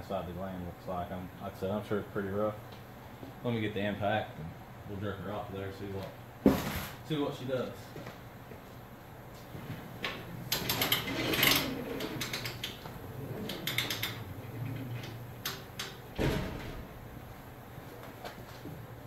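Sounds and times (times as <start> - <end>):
metallic clicks and clattering: 10.0 - 16.8.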